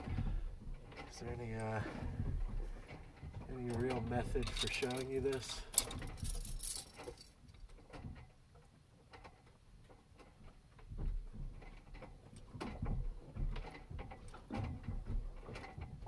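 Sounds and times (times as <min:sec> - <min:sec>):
hull knocking and creaking: 0:00.0 - 0:16.0
metal hardware clinking: 0:03.7 - 0:07.4.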